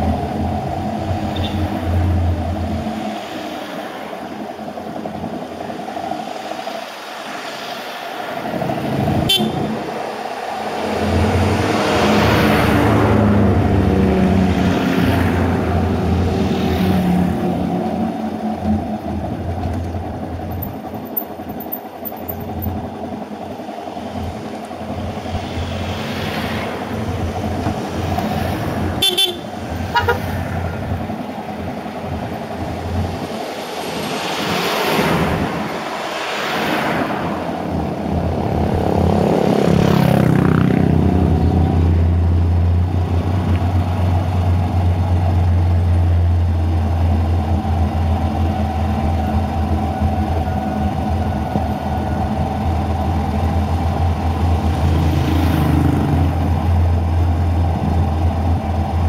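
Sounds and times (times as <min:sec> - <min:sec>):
short horn toots: 0:29.0 - 0:30.3.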